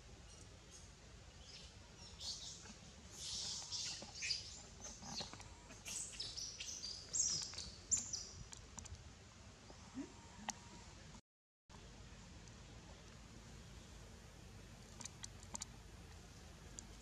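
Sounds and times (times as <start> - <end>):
animal chirps and squeaks: 1.5 - 8.2.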